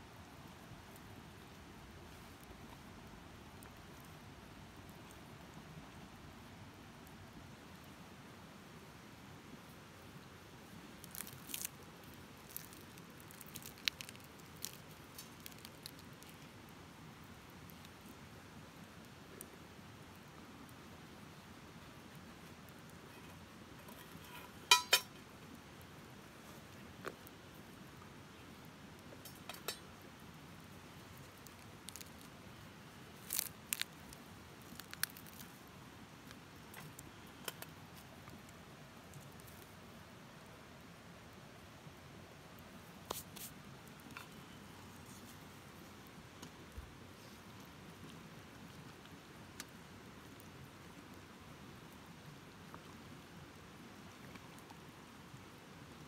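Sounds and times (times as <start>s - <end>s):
faint steady hiss: 0.0s - 56.0s
charred food crackling being peeled: 10.6s - 40.4s, 42.6s - 51.3s.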